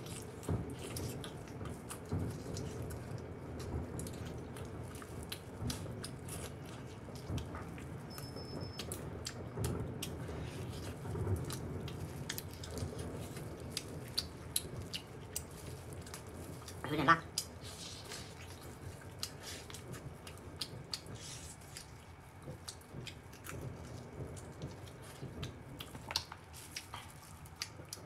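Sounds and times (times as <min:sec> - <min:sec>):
wet chewing and sucking: 0:00.0 - 0:28.0
teeth clicks: 0:25.4 - 0:28.0.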